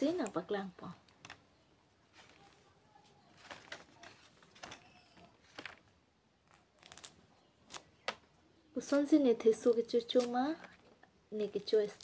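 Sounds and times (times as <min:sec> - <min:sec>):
orange rustling and tapping: 0:00.0 - 0:08.3.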